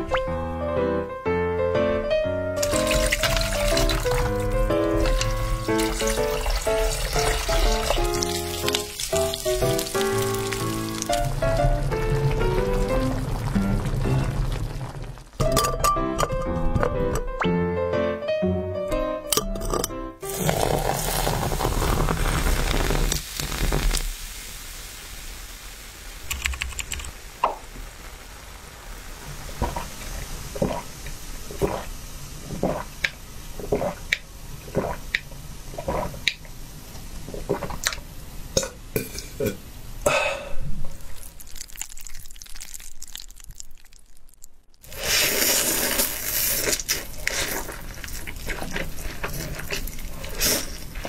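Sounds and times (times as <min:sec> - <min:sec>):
fizzy drink pouring over ice: 0:02.6 - 0:15.4, 0:20.2 - 0:25.4, 0:41.1 - 0:44.0, 0:44.8 - 0:51.0
gulping through a straw: 0:20.2 - 0:23.8, 0:29.6 - 0:30.0, 0:31.5 - 0:31.9, 0:32.5 - 0:33.0, 0:33.6 - 0:35.0, 0:35.8 - 0:36.4, 0:37.3 - 0:38.0.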